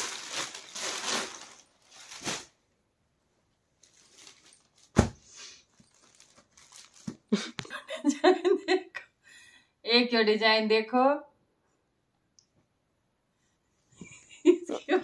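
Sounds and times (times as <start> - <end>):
fabric rustling and crinkling: 0.0 - 2.6, 3.8 - 7.3.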